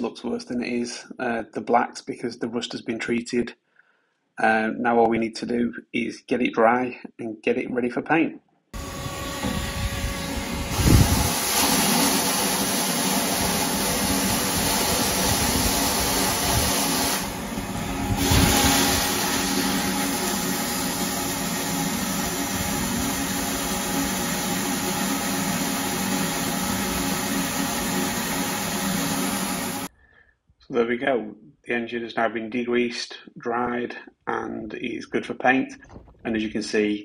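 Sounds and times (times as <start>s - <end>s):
wet-and-dry vacuum sucking water: 8.8s - 29.9s.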